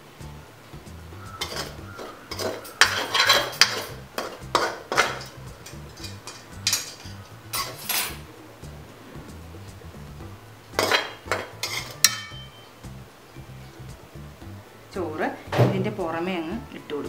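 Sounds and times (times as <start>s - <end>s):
metal spoon scraping a wok: 1.3s - 8.3s, 10.7s - 12.7s.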